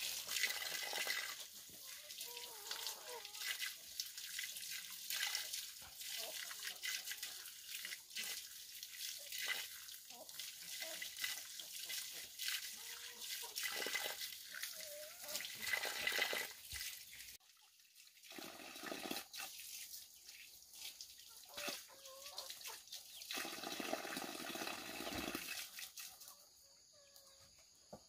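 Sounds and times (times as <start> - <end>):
water splashing and pouring: 0.0 - 26.4.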